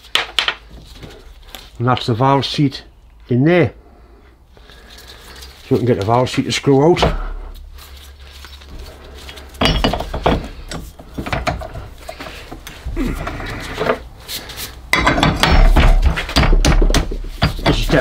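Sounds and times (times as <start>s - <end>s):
metal spanners clinking: 9.2s - 14.0s, 17.3s - 18.0s.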